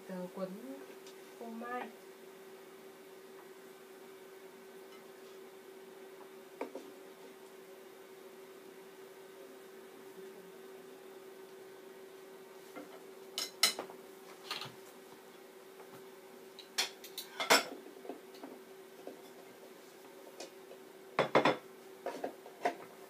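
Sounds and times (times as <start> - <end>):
air fryer trays knocking: 21.2 - 21.6.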